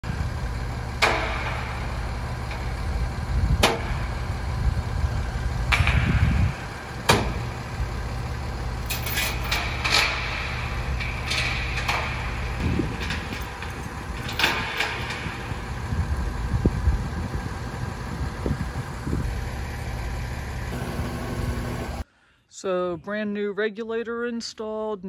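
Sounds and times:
truck engine idling: 0:00.0 - 0:22.0
chain clattering: 0:08.8 - 0:15.4
sharp metal clanks: 0:08.8 - 0:15.7.

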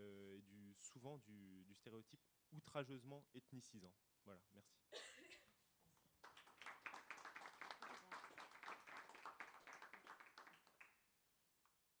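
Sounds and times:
small audience applauding: 0:06.2 - 0:11.1.

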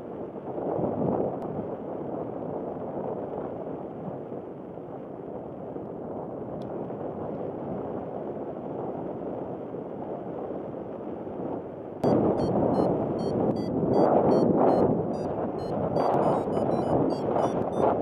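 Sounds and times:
wind rushing over microphone: 0:11.4 - 0:18.0
short regular beeps: 0:12.0 - 0:18.0.

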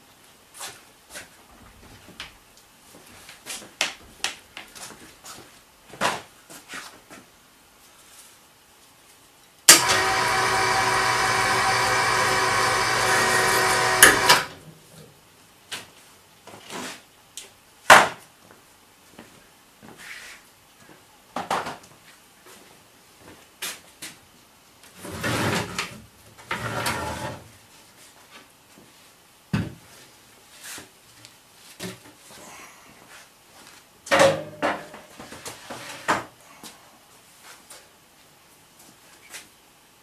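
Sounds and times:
hoist stopping clunk: 0:09.7 - 0:14.5
electric hoist motor running: 0:09.7 - 0:14.6.

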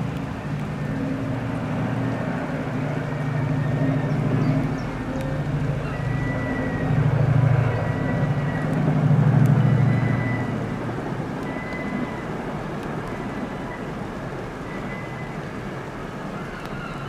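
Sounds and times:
locomotive hum: 0:00.0 - 0:17.0
train wagons rolling on rails: 0:00.0 - 0:17.0.

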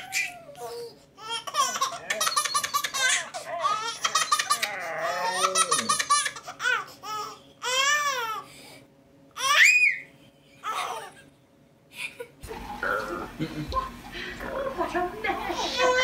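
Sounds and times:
baby laughing: 0:00.0 - 0:08.4, 0:09.4 - 0:11.3.

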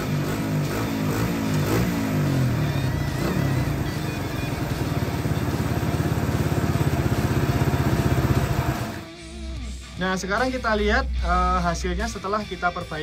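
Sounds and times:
motorcycle engine revving hard: 0:00.0 - 0:09.0.

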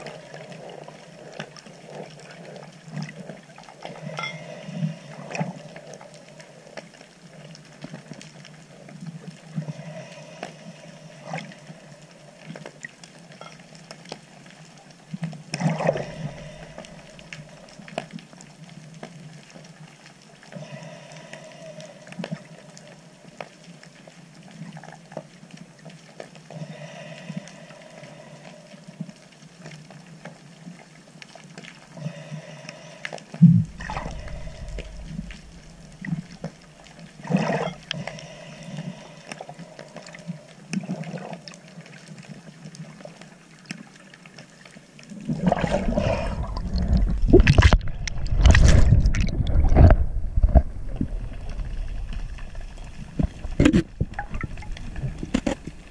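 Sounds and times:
underwater hum: 0:00.0 - 0:55.9
crackling clicks: 0:46.7 - 0:55.9.

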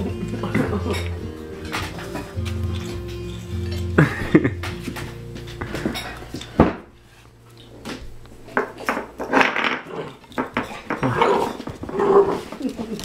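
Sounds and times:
dog claws scrabbling on tile: 0:07.9 - 0:13.0.

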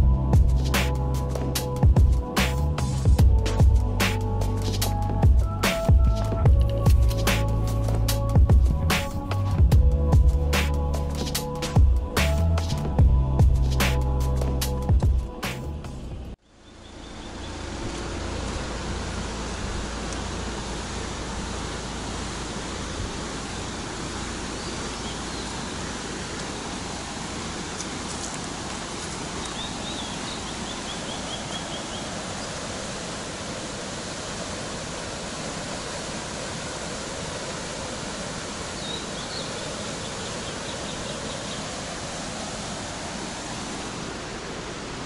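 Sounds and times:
waterfall rushing: 0:17.6 - 0:45.0.

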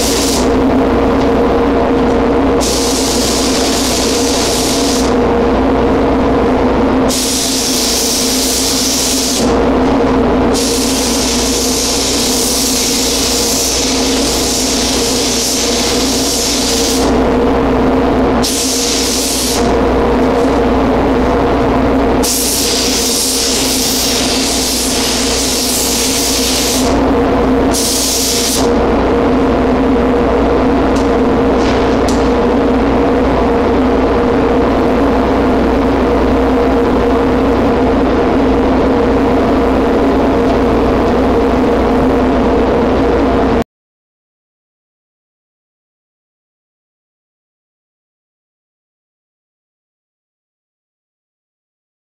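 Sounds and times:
constant low hum: 0:00.0 - 0:43.6
steady machine drone: 0:00.0 - 0:43.6
paint spray gun hissing: 0:02.6 - 0:05.1, 0:07.1 - 0:09.5, 0:10.6 - 0:17.1, 0:18.4 - 0:19.6, 0:22.2 - 0:26.9, 0:27.8 - 0:28.7.

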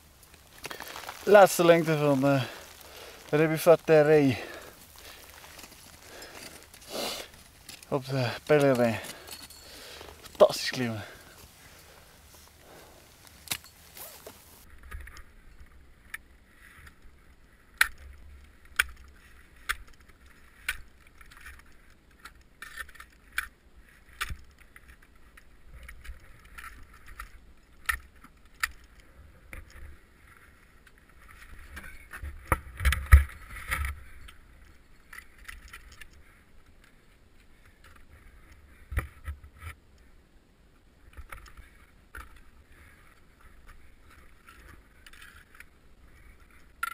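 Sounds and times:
climbing gear clinking: 0:00.3 - 0:14.6.

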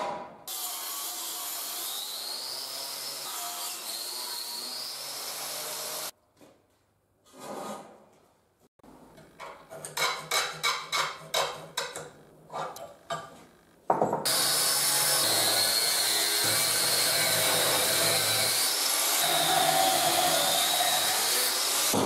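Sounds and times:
grinder disc grinding steel: 0:14.3 - 0:22.0.

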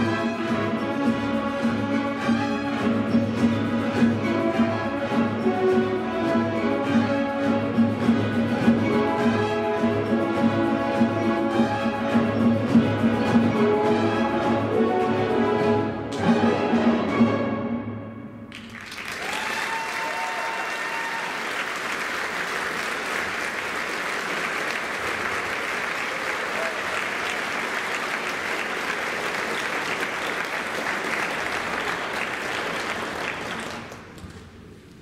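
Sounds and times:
audience applauding: 0:18.5 - 0:34.4.

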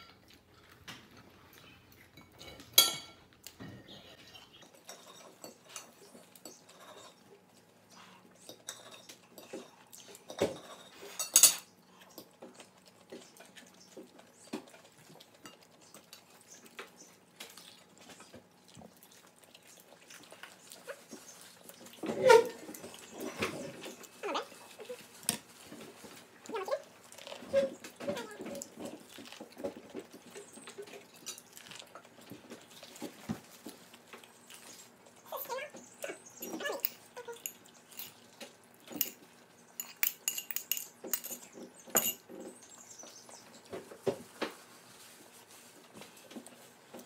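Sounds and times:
quiet eating sounds: 0:00.0 - 0:47.0
cutlery and dishes clinking: 0:02.1 - 0:07.2, 0:08.5 - 0:11.7, 0:36.4 - 0:38.2, 0:38.9 - 0:39.2, 0:39.8 - 0:42.3.

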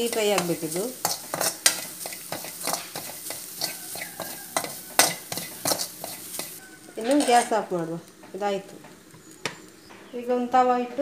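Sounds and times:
spoon scraping metal pan: 0:00.0 - 0:07.6
steady hiss: 0:00.0 - 0:11.0.

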